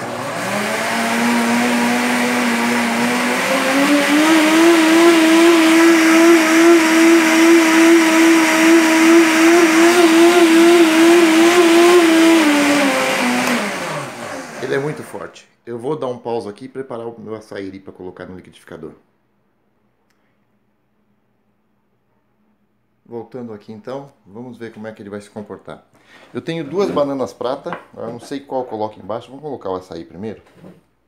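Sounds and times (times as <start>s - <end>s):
blender motor whine: 0.0s - 15.2s.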